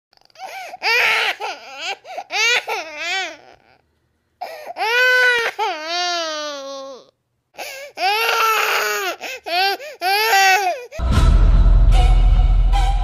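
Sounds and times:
baby crying: 0.3 - 3.8, 4.4 - 11.0.

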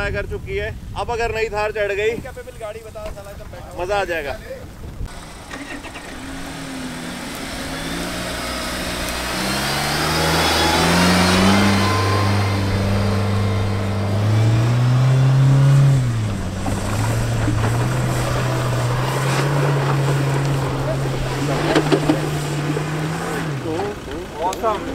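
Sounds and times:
engine revving hard: 5.1 - 24.9.

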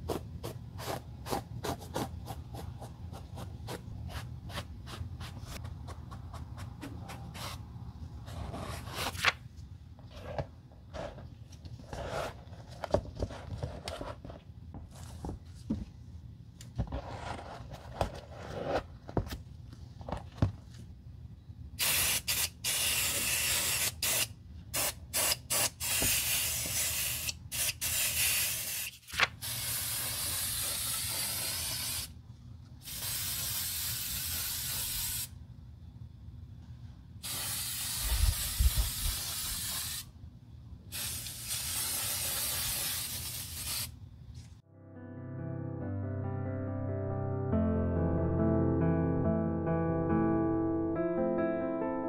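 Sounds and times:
aerosol spray hissing: 21.8 - 32.1, 32.8 - 35.3, 37.2 - 40.1, 40.9 - 43.9.

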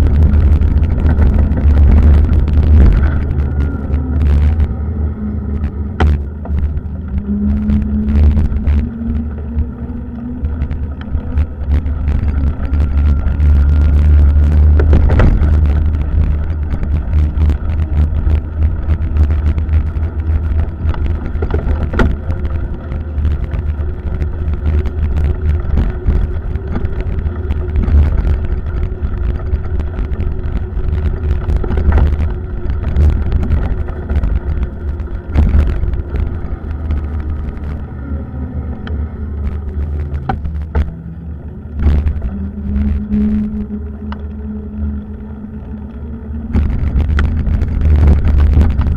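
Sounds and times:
road noise: 0.0 - 48.9
wind rumbling on microphone: 0.0 - 48.9
bicycle knocks and rattles: 10.4 - 37.7.

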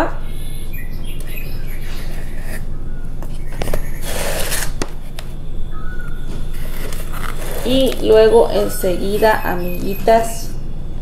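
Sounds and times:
steady low hum: 0.0 - 11.0
plant rustling: 6.2 - 8.8.

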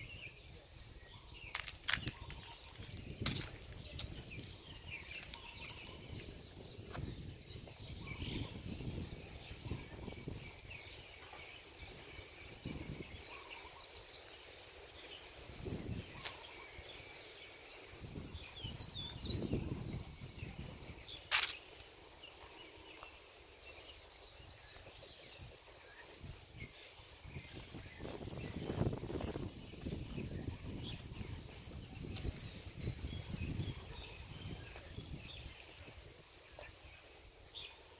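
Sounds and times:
wind gusts on microphone: 0.0 - 13.9, 14.9 - 21.5, 24.0 - 37.7
small birds chirping: 0.0 - 37.9.

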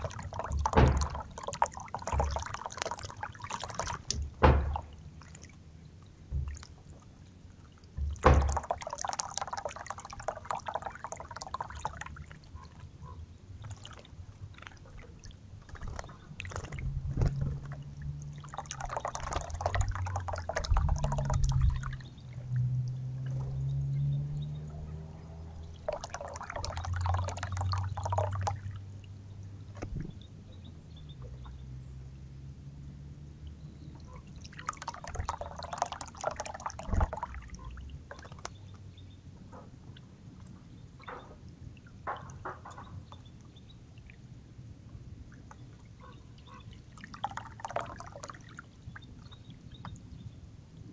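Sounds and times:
bird splashing in water: 0.0 - 7.0, 7.6 - 30.2, 34.0 - 39.0
fountain trickling and splashing: 0.0 - 39.3, 40.0 - 50.9
low steady hum: 0.0 - 50.9.

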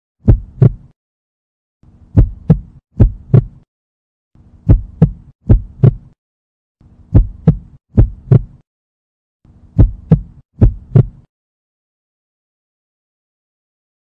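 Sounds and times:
heartbeat thumps: 0.2 - 0.9, 2.1 - 3.6, 4.6 - 6.2, 7.1 - 8.6, 9.7 - 11.3.

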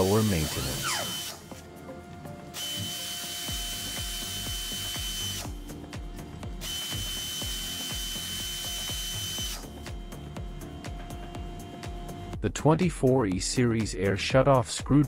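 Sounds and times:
pneumatic screwdriver running: 0.0 - 1.5, 2.5 - 5.6, 6.6 - 9.7
background music with steady beat: 0.0 - 15.0.

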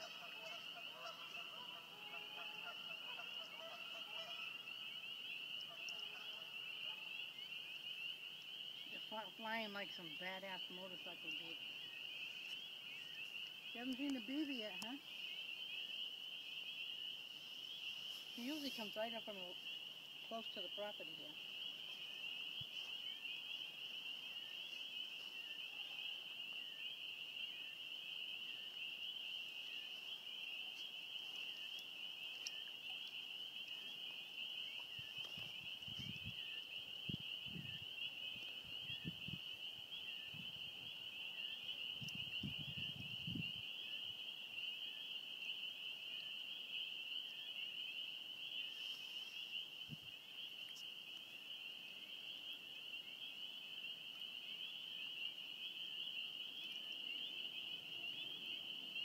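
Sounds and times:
shrill chorus of calling animals: 0.0 - 4.8.

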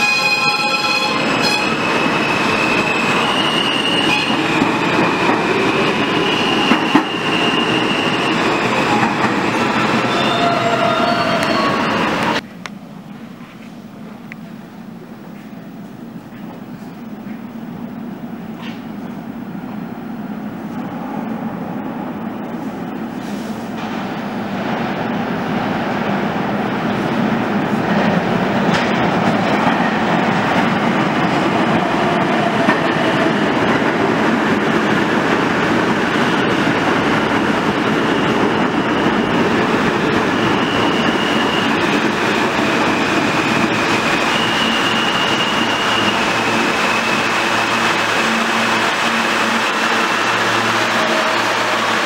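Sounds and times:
train wheels rumbling on rail: 0.0 - 52.0.

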